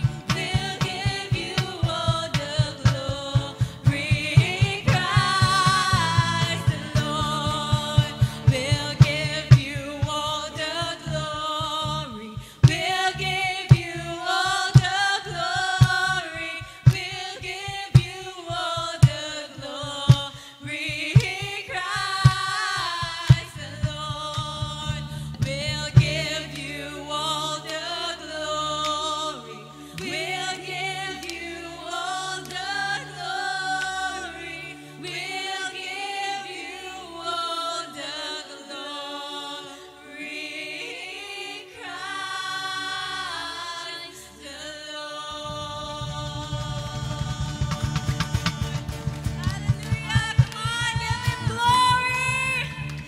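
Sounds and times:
band with steady beat: 0.0s - 10.4s, 45.5s - 53.0s
held low notes: 0.0s - 17.8s, 23.0s - 35.3s, 45.3s - 53.0s
voices singing: 0.0s - 53.0s.

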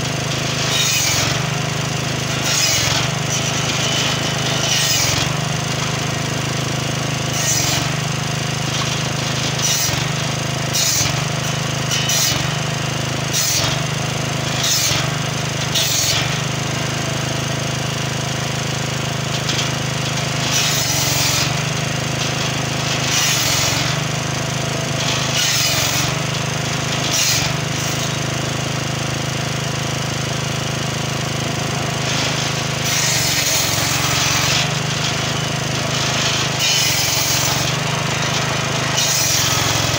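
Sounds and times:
saw blade cutting wood: 0.0s - 39.9s
small engine running: 0.0s - 39.9s.

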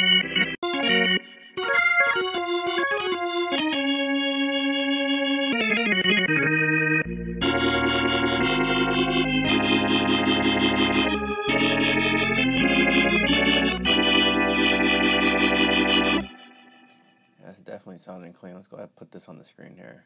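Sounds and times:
organ chords: 0.0s - 17.4s
bass line: 5.5s - 16.5s.

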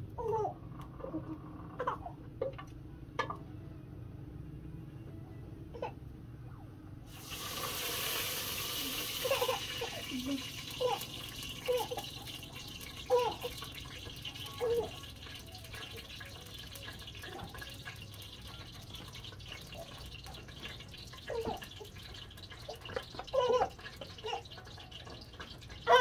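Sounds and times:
liquid pouring into metal pot: 7.1s - 25.9s.

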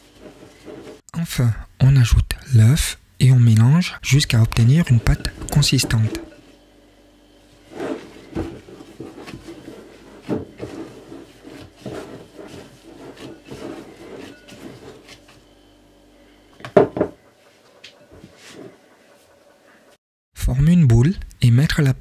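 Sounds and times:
gloved hand kneading dough in bowl: 0.0s - 1.0s, 4.1s - 6.7s, 7.4s - 15.6s.

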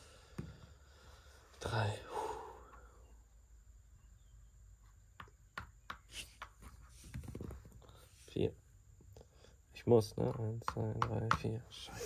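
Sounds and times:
game pieces clicking on board: 5.2s - 7.6s, 10.2s - 11.6s.

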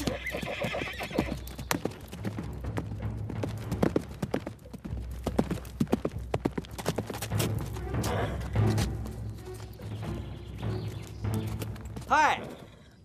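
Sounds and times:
horse whinnying: 0.0s - 1.4s
horse hooves clip-clopping: 0.0s - 12.7s.

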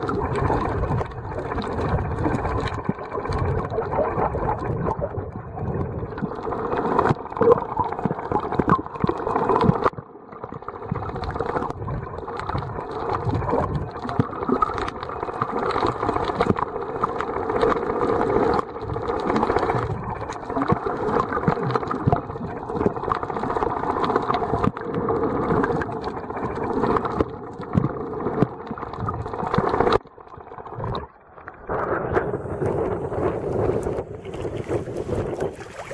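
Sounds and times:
choppy water: 0.0s - 35.9s
muffled underwater rush: 0.0s - 35.9s.

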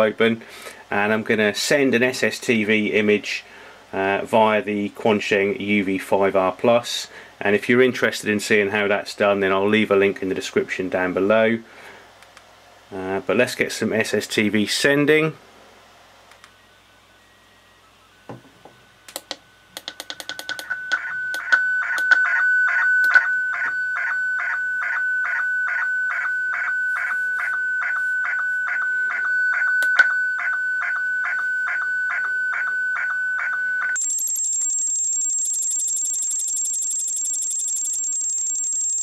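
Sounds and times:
steady high tone: 16.6s - 38.2s
radio clicks: 19.1s - 22.4s, 23.0s - 24.1s, 29.8s - 30.1s
warbling image signal tone: 20.0s - 39.0s.

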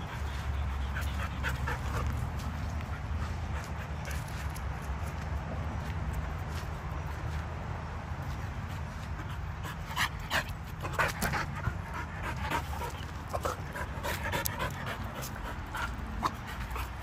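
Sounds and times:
dog panting: 0.0s - 4.9s, 9.0s - 17.0s.

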